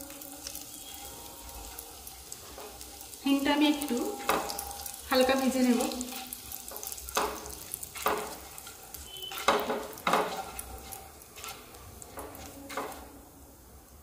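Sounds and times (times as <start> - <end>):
spice sizzling in hot oil: 0.0 - 14.0
wooden spatula scraping pan: 3.9 - 13.2.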